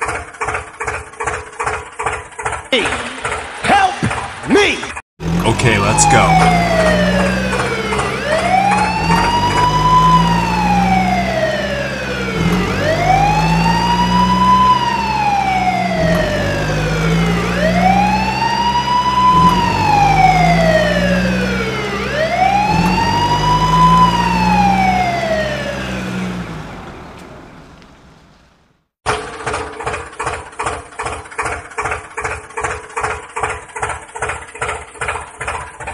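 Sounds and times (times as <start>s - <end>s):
wailing emergency siren: 5.3s - 27.1s.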